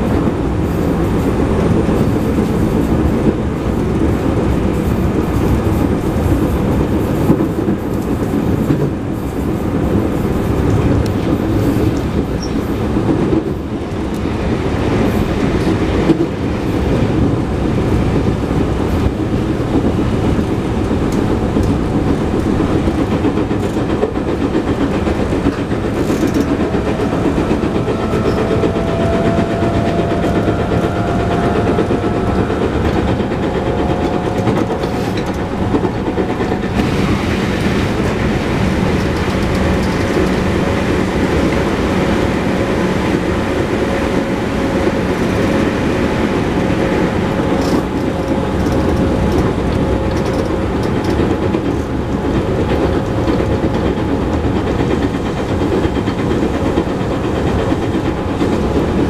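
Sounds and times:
wheel and rail rumble: 0:00.0 - 0:59.0
faint rising tone: 0:26.5 - 0:34.3.

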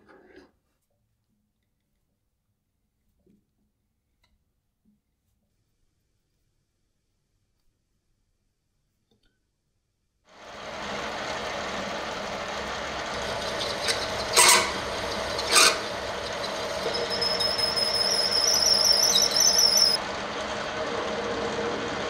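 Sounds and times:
milling machine spindle running: 0:10.4 - 0:22.0
high wavering cutter squeal: 0:13.0 - 0:20.0
cutter scraping metal: 0:13.1 - 0:20.0.

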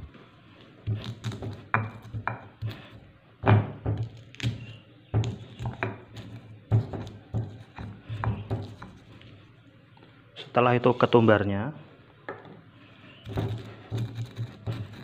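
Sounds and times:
stone pestle pounding: 0:00.9 - 0:02.8, 0:03.4 - 0:09.0, 0:13.2 - 0:15.0.

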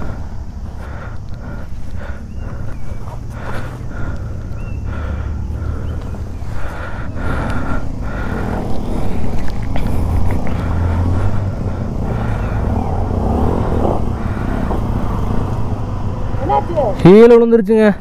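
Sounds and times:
motorcycle engines rumbling: 0:00.0 - 0:18.0.

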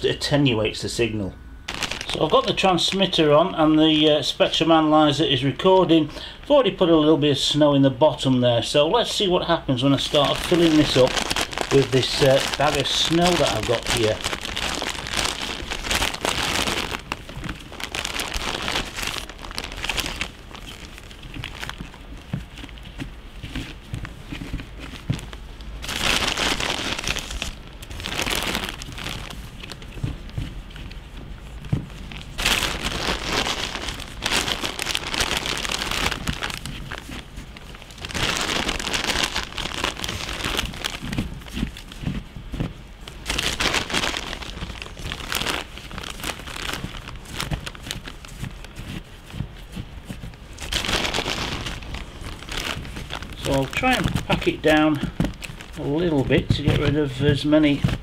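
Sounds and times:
plastic bag crinkling: 0:01.7 - 0:04.8, 0:09.0 - 0:58.0
snow crunching: 0:10.1 - 0:16.8.

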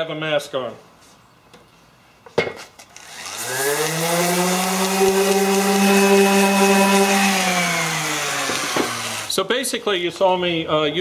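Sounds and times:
orbital sander motor whine: 0:03.0 - 0:09.4.

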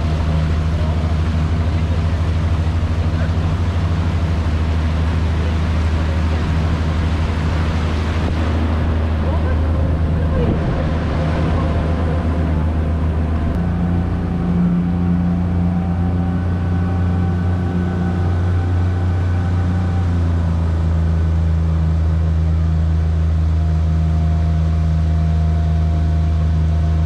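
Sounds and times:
outboard motor droning: 0:00.0 - 0:27.0
water hissing along hull: 0:00.0 - 0:27.0.

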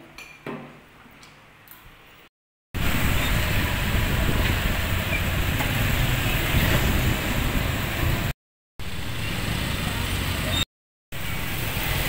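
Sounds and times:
motorbike engines running: 0:02.8 - 0:12.0.

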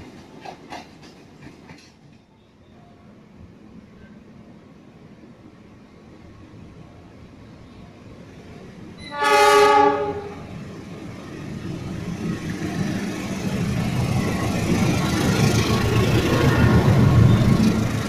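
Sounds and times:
train engine and wheels rumbling: 0:00.0 - 0:18.0
train horn blast: 0:09.0 - 0:10.5.

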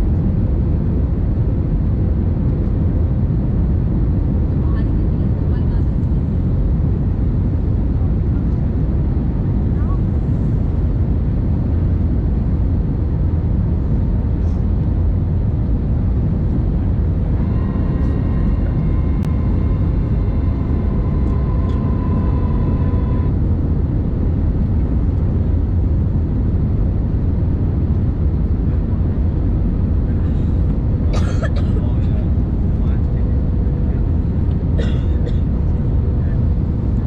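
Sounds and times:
airplane cabin rumble: 0:00.0 - 0:37.0
steady whine with overtones: 0:14.9 - 0:31.2.

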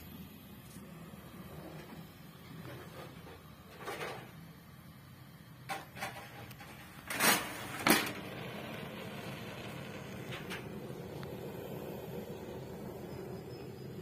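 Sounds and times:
steady gas hiss: 0:00.0 - 0:14.0.

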